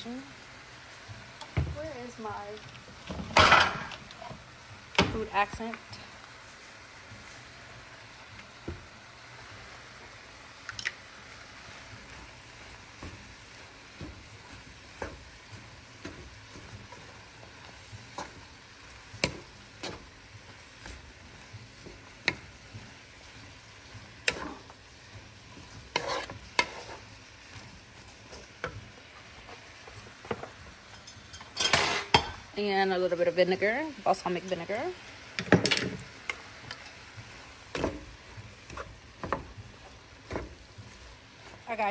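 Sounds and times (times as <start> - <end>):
vegetables sizzling in a pan: 0.0 - 41.9
wooden spoon knocking on a pan: 1.5 - 1.8.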